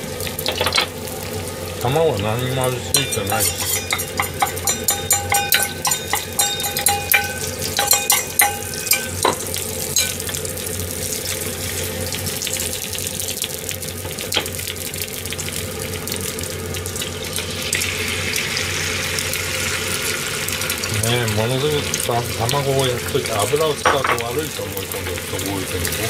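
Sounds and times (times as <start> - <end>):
egg sizzling in oil: 0.0 - 26.0
chopsticks clinking on steel bowl: 2.9 - 10.2.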